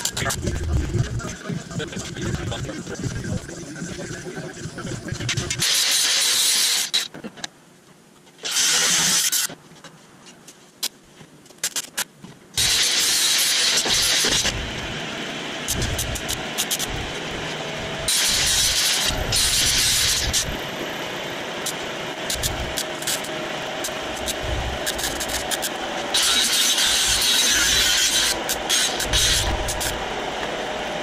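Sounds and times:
scattered clicks and taps: 0.0s - 5.7s, 15.7s - 17.1s, 21.6s - 25.8s
welding arc crackling and hissing: 0.0s - 7.1s, 8.5s - 9.5s, 12.6s - 21.0s, 21.6s - 30.6s
welding machine engine rumbling: 0.0s - 7.1s, 12.6s - 31.0s.

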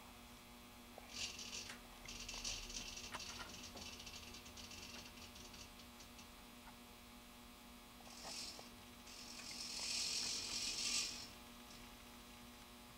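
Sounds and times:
steady electrical hum: 0.0s - 12.9s
hissing rattle of mechanism: 1.0s - 6.4s, 8.0s - 12.0s.

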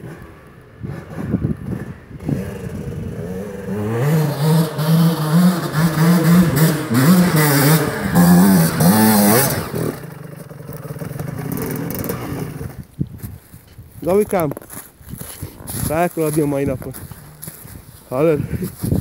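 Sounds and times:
dirt bike engine revving: 0.0s - 12.8s, 17.0s - 18.3s
rear wheel scraping on ice: 14.4s - 19.0s.

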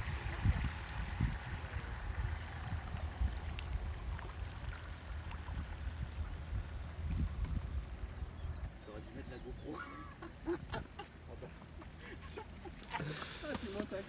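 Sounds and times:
small splashes: 0.0s - 8.7s
low rumble: 0.0s - 8.8s.

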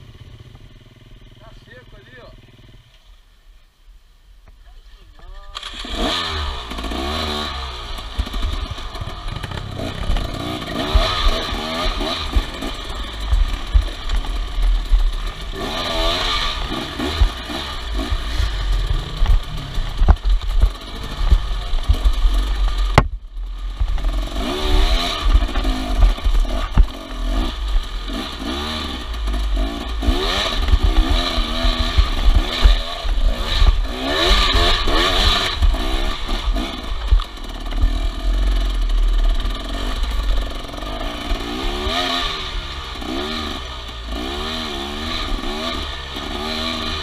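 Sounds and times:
motorcycle engine revving: 0.0s - 3.1s, 5.4s - 47.0s
bike rattling and knocking over rocks: 8.2s - 27.5s, 28.1s - 42.1s.

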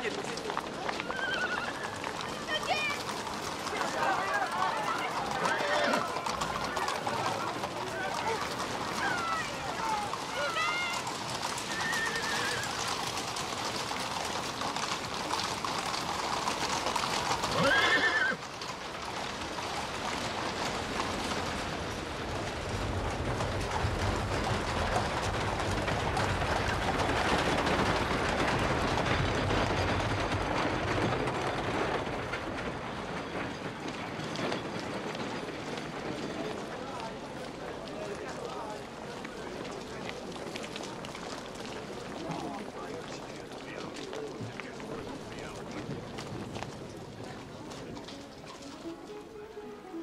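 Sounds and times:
crowd moving about: 0.0s - 50.0s
hooves clattering on cobbles: 0.0s - 50.0s
horses whinnying: 0.9s - 2.4s, 3.0s - 13.5s, 14.1s - 18.6s.

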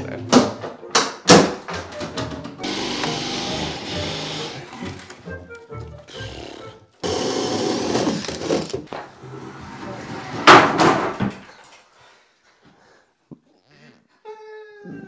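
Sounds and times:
scraping and rustling: 7.8s - 11.7s
loud knock: 10.4s - 11.3s.

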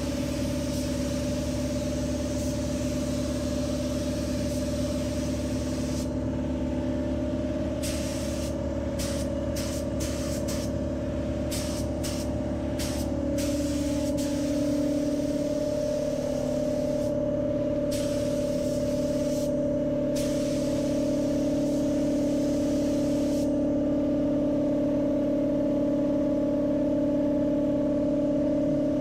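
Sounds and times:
spray gun hissing: 0.0s - 6.2s, 7.8s - 10.7s, 11.5s - 17.2s, 17.8s - 19.6s, 20.2s - 23.6s
machine hum: 3.5s - 29.0s.

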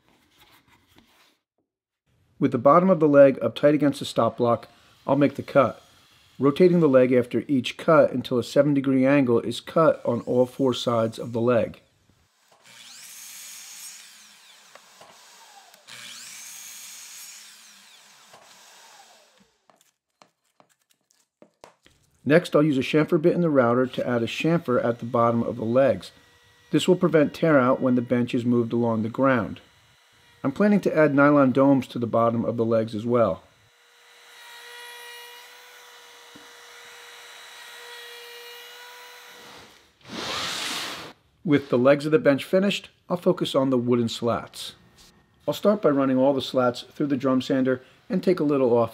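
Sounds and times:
miter saw cutting wood: 4.2s - 7.1s, 9.6s - 19.8s, 23.6s - 41.8s
router whining: 12.3s - 20.0s, 23.9s - 41.2s
burst of hiss: 40.0s - 41.2s.

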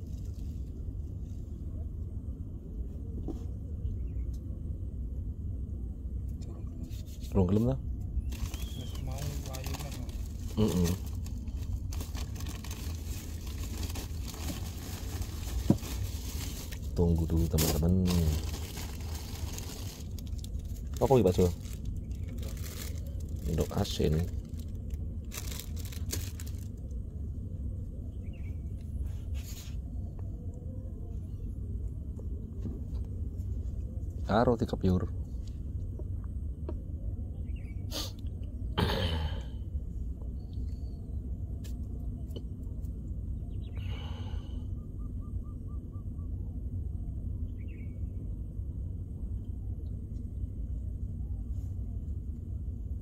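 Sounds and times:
bird harsh call and hooting: 8.2s - 9.2s, 43.4s - 46.6s
hands rustling bait: 8.3s - 23.7s.

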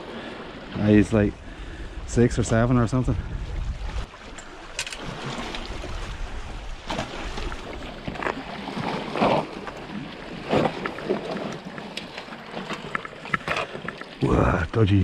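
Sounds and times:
wind on microphone: 1.3s - 4.2s, 5.1s - 8.3s
sea water washing against rocks: 3.3s - 15.0s.

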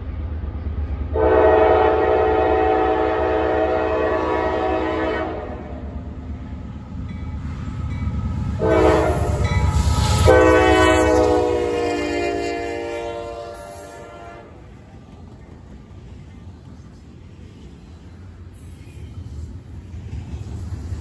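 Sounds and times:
train air horn blasts: 1.2s - 5.9s, 8.6s - 14.6s.

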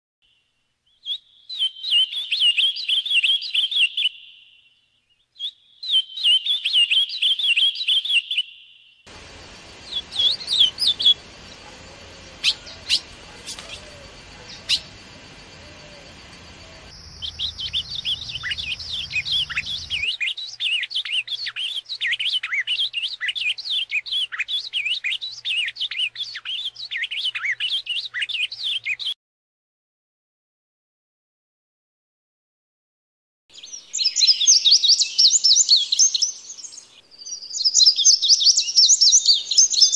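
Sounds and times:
background hiss: 0.2s - 7.9s, 8.6s - 22.3s, 33.6s - 39.9s
bird singing warbled phrases: 0.2s - 29.2s, 33.6s - 39.9s
fast high twittering birdsong: 0.2s - 29.2s, 33.6s - 39.9s.

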